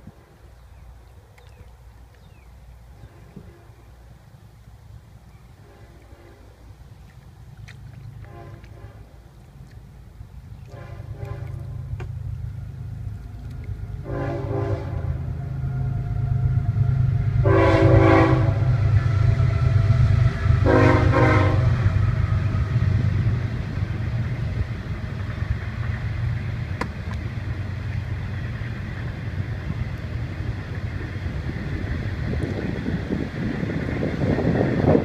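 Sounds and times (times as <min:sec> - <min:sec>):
train rumbling: 0:00.0 - 0:35.0
train horn blasts: 0:03.0 - 0:04.1, 0:05.6 - 0:06.7, 0:08.2 - 0:09.2, 0:10.6 - 0:11.9, 0:13.9 - 0:23.3.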